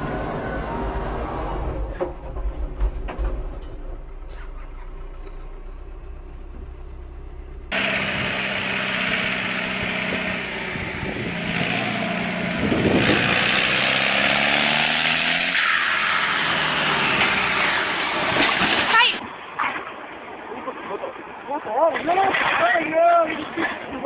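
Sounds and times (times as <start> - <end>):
low hum: 0.0 - 14.3
tractor engine running hard: 0.0 - 15.5.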